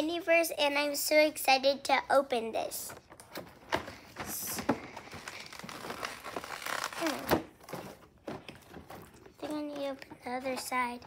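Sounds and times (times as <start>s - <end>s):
packaging crinkling and rustling: 3.1s - 10.8s.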